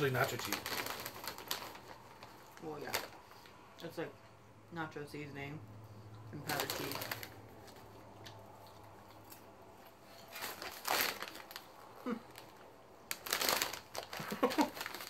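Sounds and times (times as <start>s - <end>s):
snack bag crinkling: 0.0s - 3.5s, 6.4s - 9.4s, 10.1s - 15.0s.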